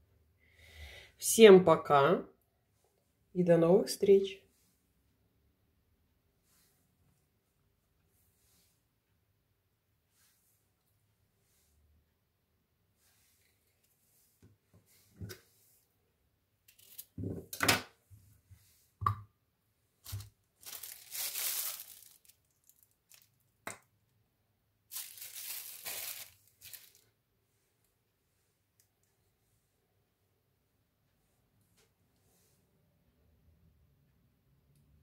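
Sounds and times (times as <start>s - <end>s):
plastic piping bag crinkling: 16.7s - 17.2s, 20.0s - 23.6s, 24.9s - 27.2s.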